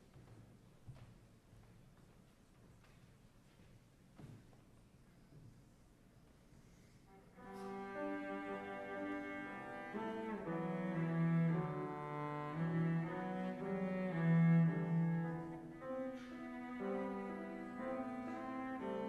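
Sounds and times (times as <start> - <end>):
bowed cello melody: 7.1 - 19.0.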